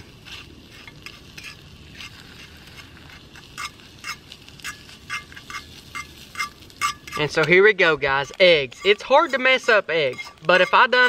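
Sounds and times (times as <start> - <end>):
fork scraping a skillet: 0.0 - 7.5, 8.3 - 11.0
egg sizzling in oil: 0.0 - 11.0
metal tapping on a pan: 2.8 - 7.6, 8.3 - 11.0.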